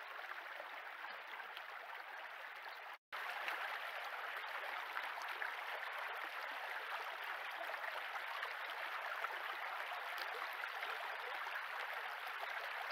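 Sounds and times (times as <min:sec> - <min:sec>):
stream flowing over gravel: 0:00.0 - 0:12.9.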